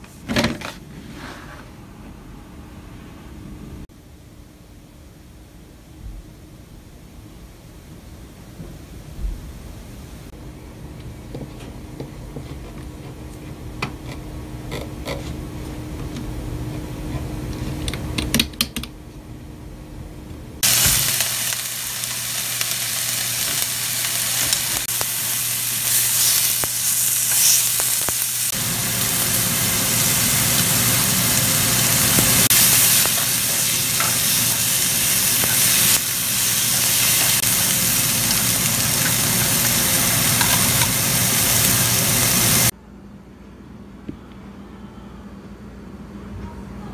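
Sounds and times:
food sizzling in a frying pan: 20.6s - 42.7s.

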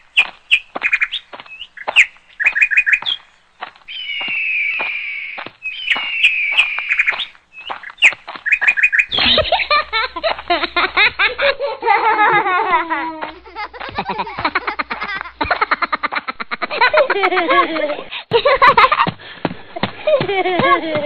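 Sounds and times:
birds chirping: 0.0s - 21.0s
children laughing and talking: 9.1s - 21.0s.

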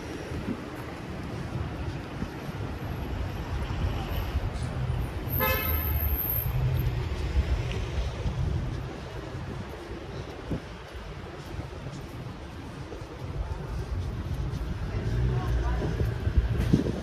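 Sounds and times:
road traffic rumbling: 0.0s - 17.0s
car horn toot: 5.3s - 6.0s.

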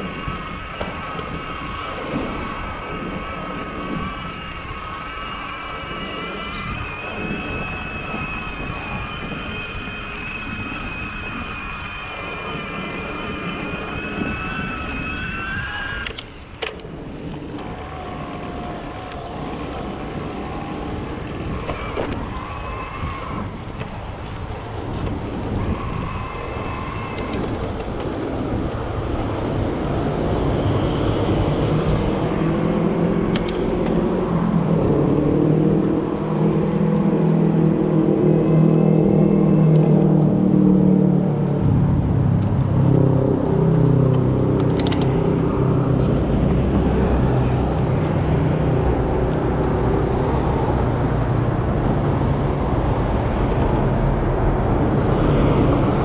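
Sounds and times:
electric bike motor whine: 0.0s - 41.5s
wind rumbling on microphone: 0.0s - 56.0s.

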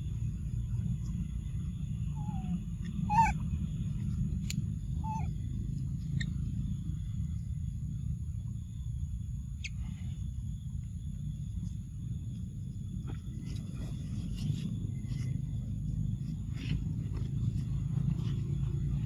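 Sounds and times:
steady low rumble: 0.0s - 19.0s
squeaky animal calls: 2.2s - 3.4s, 5.0s - 5.4s.

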